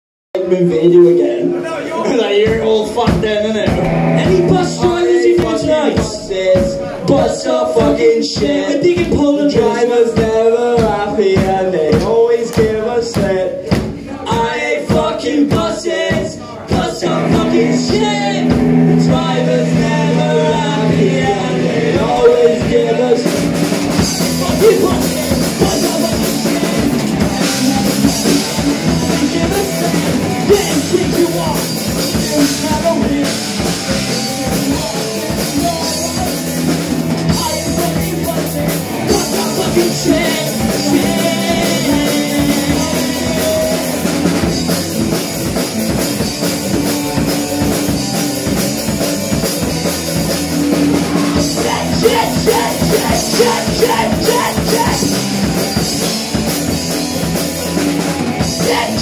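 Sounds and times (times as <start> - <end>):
drum kit: 0.4 - 59.0
electric guitars through amplifiers: 3.0 - 7.3, 16.5 - 59.0.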